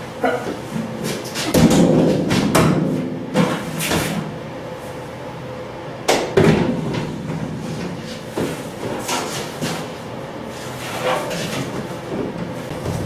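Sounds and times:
metal cabinet knocking and clanking: 1.4s - 4.2s, 6.1s - 8.0s.

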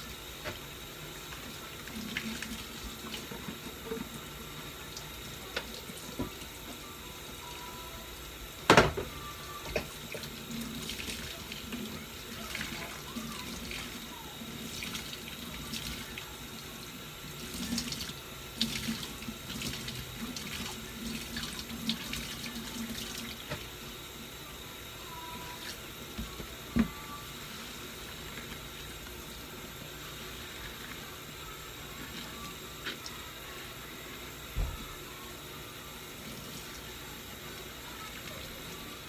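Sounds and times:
faucet running into steel sink: 9.7s - 23.7s.

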